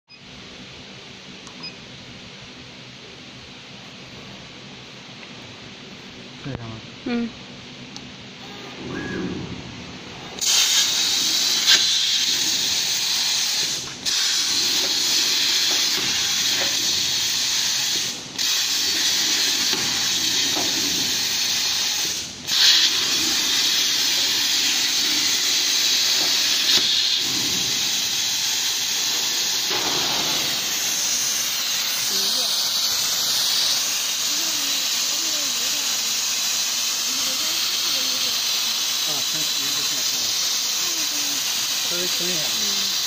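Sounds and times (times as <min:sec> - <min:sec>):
plasma cutter hissing: 0:10.3 - 0:43.0.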